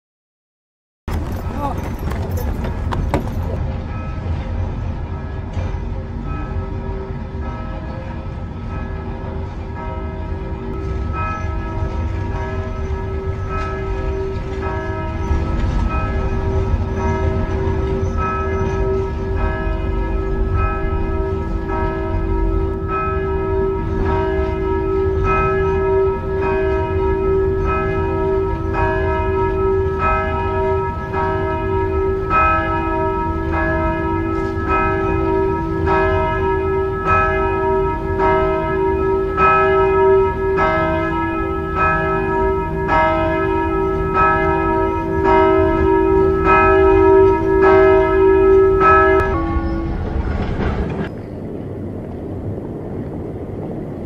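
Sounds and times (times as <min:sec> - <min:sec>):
church bells pealing: 0:01.1 - 0:51.1.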